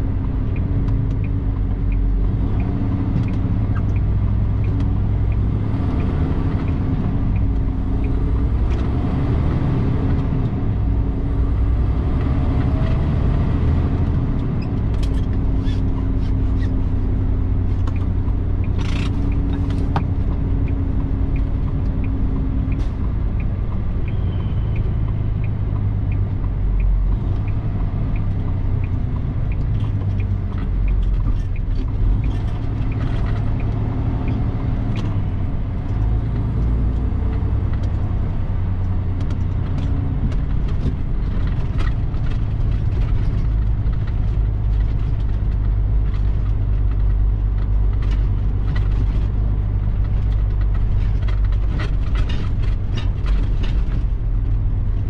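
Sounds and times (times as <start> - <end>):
truck engine and road rumble: 0.0 - 55.0
rattles and clicks: 13.9 - 24.2, 24.8 - 38.0, 38.8 - 55.0
regular ticking: 17.1 - 37.2.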